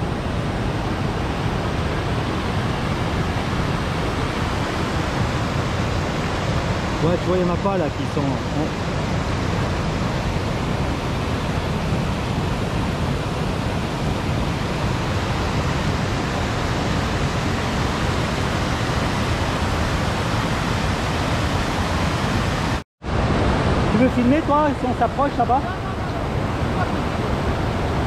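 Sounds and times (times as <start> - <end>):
river water rushing over rocks: 0.0 - 28.0.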